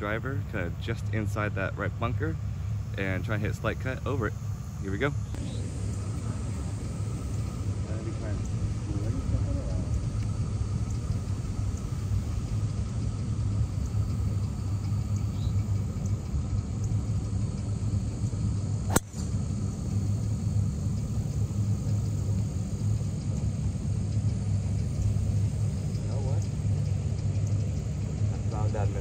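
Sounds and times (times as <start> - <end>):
steady low rumble: 0.0 - 29.0
golf driver striking ball: 18.9 - 19.4.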